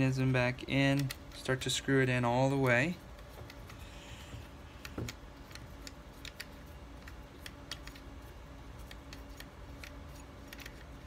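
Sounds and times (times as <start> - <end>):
screw clicking and ticking: 0.7 - 1.5, 4.8 - 8.1.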